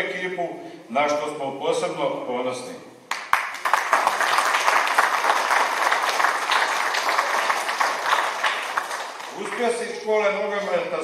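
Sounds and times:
audience applauding: 3.1 - 10.0.

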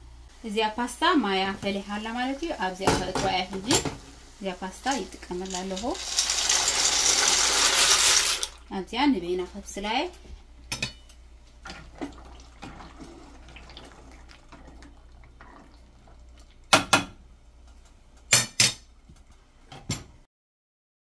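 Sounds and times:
boiling water bubbling: 11.4 - 17.7.

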